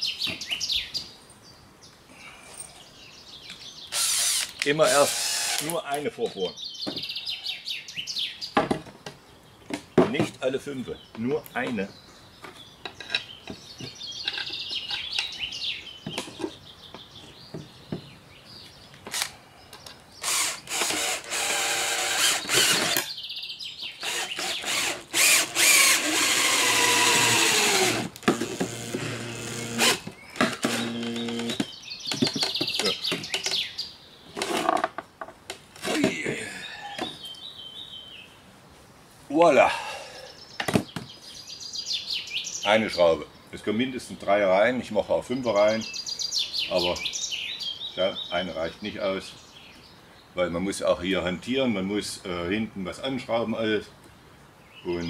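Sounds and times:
cordless drill whining: 3.9 - 5.7, 20.2 - 23.1, 24.0 - 31.6.

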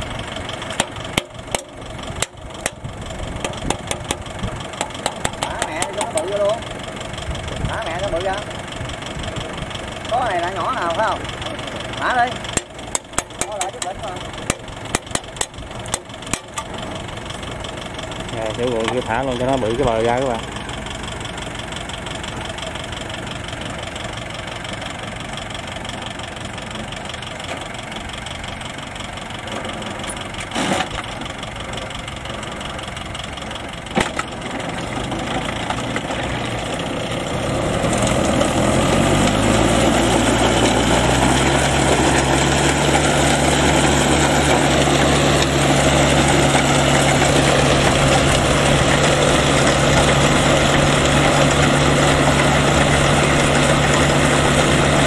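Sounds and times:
tractor engine running: 0.0 - 55.0
sharp knocks: 3.4 - 6.3.

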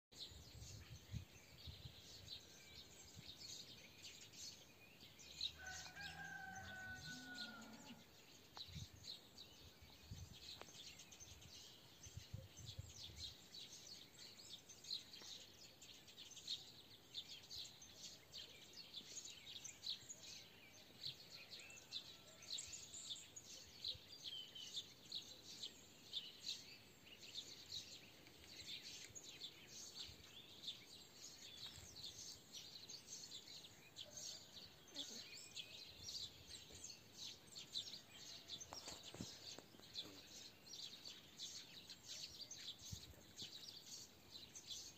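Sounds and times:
faint songbirds chirping: 0.1 - 44.9
rooster crowing: 5.6 - 8.0.

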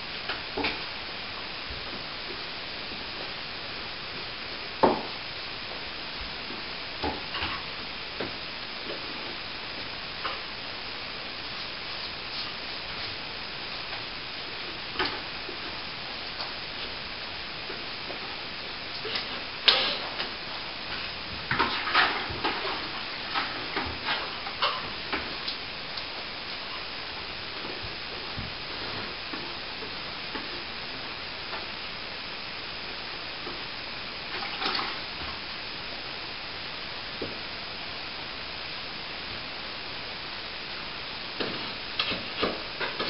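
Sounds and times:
steady hiss: 0.0 - 43.0.

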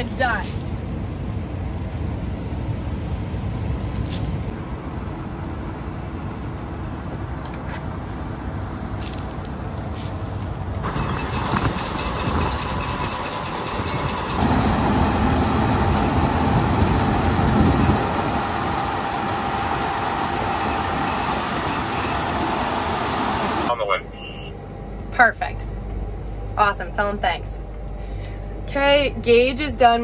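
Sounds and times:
large engine rumbling: 0.0 - 30.0
steady whine: 10.4 - 30.0.

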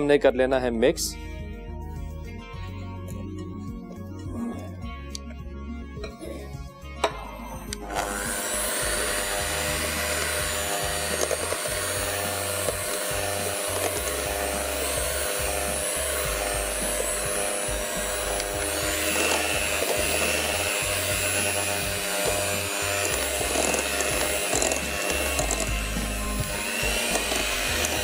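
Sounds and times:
electric hand mixer running: 6.9 - 28.0.

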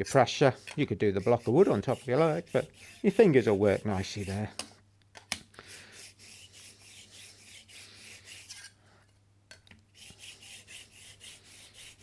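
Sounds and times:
scraper rasping on sharpening stone: 0.6 - 4.4, 5.7 - 8.8, 10.0 - 12.0.

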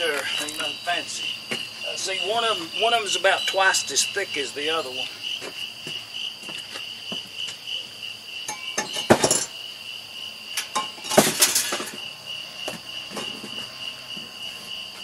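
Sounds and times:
night insects chirping: 0.0 - 15.0
metal clanking on metal: 8.5 - 9.5, 10.6 - 12.1.

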